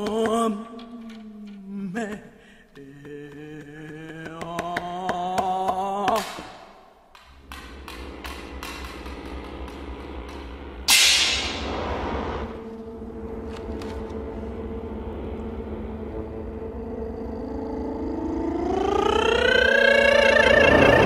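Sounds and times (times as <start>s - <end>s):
held low ensemble tones: 6.8s - 21.0s
loud percussion stroke ringing: 7.4s - 11.8s
voice sliding upward in pitch: 17.4s - 21.0s.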